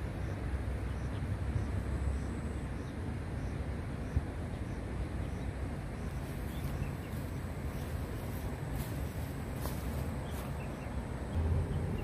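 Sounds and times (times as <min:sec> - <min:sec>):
low rumble with hiss: 0:00.0 - 0:12.0
faint sharp rustles: 0:06.1 - 0:10.7.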